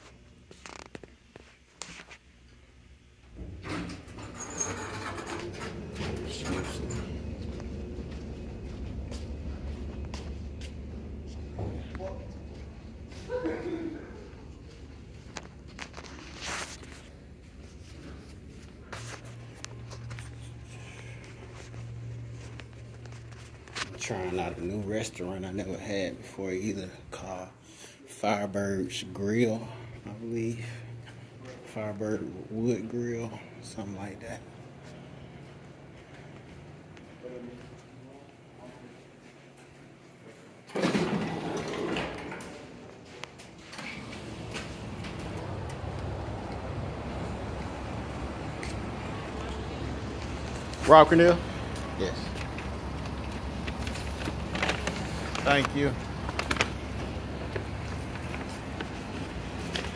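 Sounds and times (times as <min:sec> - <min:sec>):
low background hum: 0:00.0 - 0:59.9
outside background noise: 0:00.0 - 0:59.9
automatic sliding doors opening: 0:03.3 - 0:13.4, 0:40.7 - 0:59.9
rustling handling noise: 0:14.6 - 0:25.2, 0:48.1 - 0:59.9.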